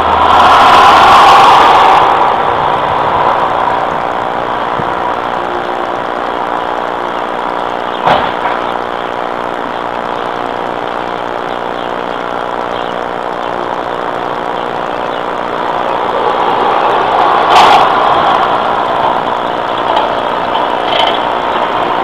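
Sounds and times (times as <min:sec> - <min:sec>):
sharp knock: 0:08.0 - 0:08.6.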